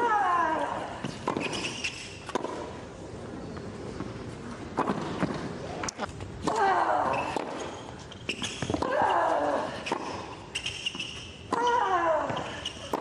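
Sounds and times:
racket striking tennis ball: 1.0s - 2.7s
tennis ball bouncing: 1.0s - 2.8s.

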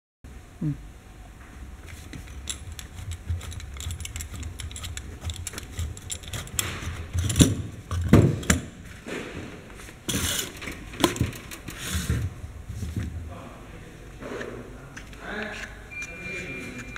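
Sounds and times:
grease gun clicking and rattling: 2.1s - 8.6s.

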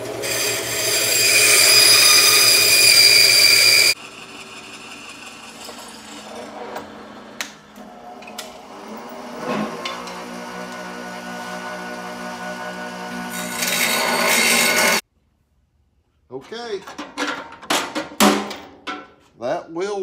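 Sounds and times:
bandsaw cutting metal: 0.0s - 15.0s
drill press humming: 0.0s - 15.0s.

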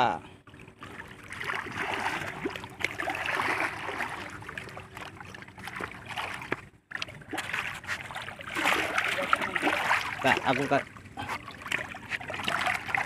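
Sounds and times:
water splashing and trickling: 0.0s - 13.0s.

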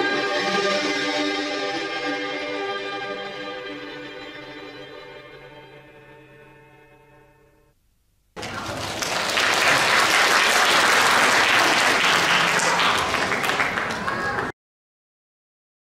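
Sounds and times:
audience applauding: 8.4s - 14.6s.

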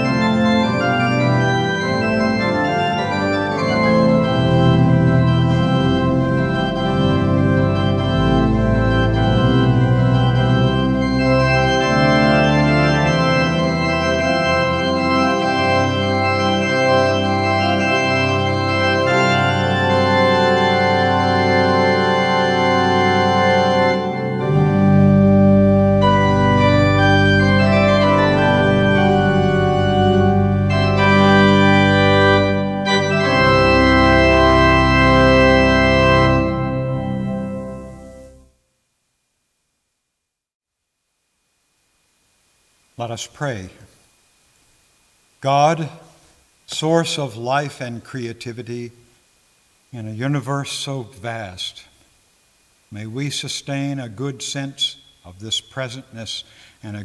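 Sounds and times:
deep organ pedal bass: 0.0s - 38.4s
church organ chords: 0.0s - 38.6s, 45.4s - 49.0s, 50.0s - 51.9s, 52.9s - 57.0s.

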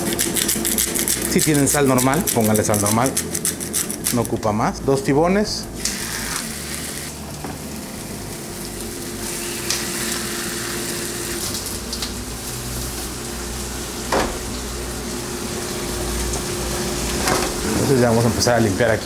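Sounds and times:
food sizzling in a frying pan: 5.9s - 17.8s.

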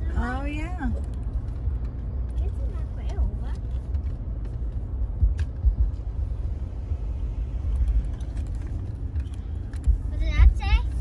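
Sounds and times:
car cabin rumble: 0.0s - 11.0s.

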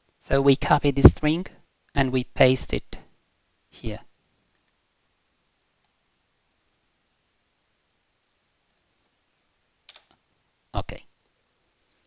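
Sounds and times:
faint computer clicks: 4.5s - 4.8s, 9.9s - 10.2s.

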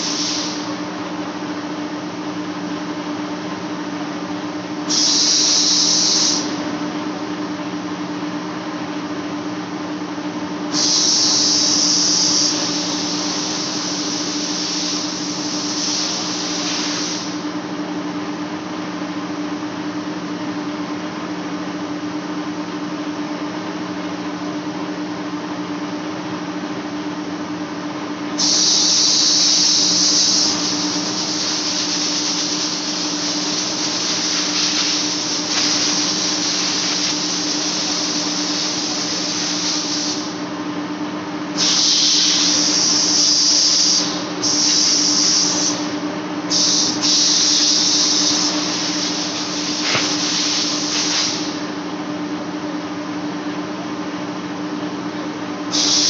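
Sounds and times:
loud high-pitched hiss: 0.0s - 0.8s, 4.9s - 6.6s, 10.7s - 17.5s, 28.4s - 40.4s, 41.6s - 51.7s, 55.7s - 56.0s.

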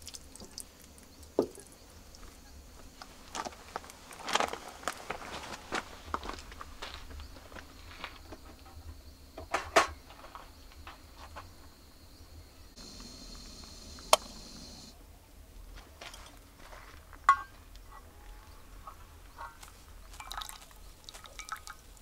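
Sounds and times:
steady hiss: 12.2s - 15.7s
camp cookware clicking and knocking: 17.3s - 17.5s.

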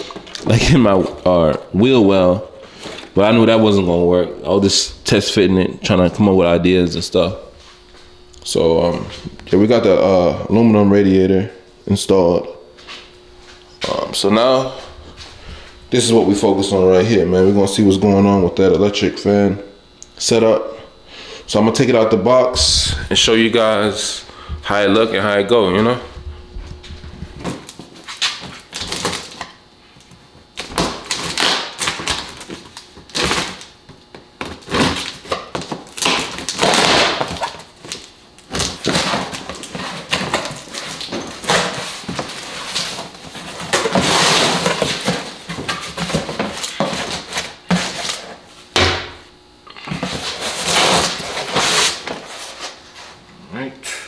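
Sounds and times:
cardboard scraping and tearing: 34.5s - 48.4s, 49.9s - 52.8s.

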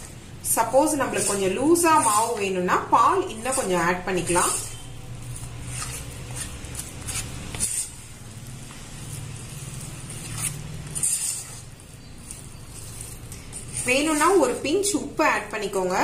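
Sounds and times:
batter stirred in metal bowl: 0.0s - 16.0s.

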